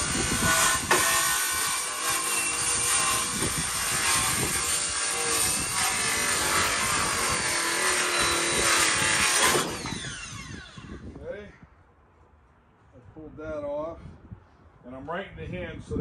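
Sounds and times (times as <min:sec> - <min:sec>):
power saw cutting wood: 0:00.0 - 0:11.0.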